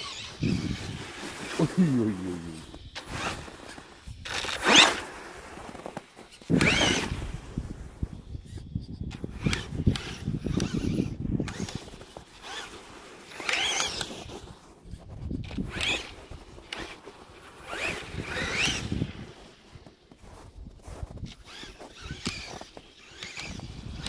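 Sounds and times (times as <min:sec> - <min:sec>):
electric motor whine rising: 0:06.5 - 0:07.3, 0:17.7 - 0:19.3.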